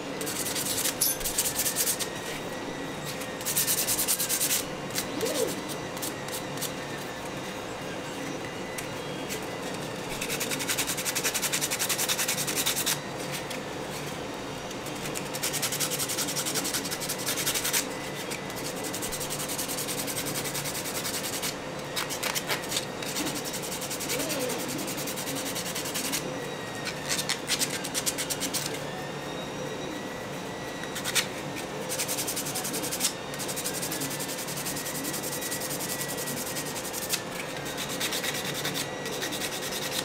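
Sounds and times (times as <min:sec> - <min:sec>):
sandpaper rubbing plastic: 0:03.1 - 0:06.8, 0:10.1 - 0:13.5, 0:18.5 - 0:26.2, 0:31.9 - 0:40.0.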